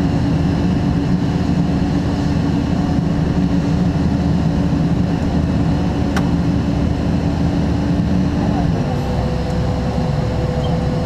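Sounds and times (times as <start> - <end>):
truck engine and hydraulics drone: 0.0 - 11.0.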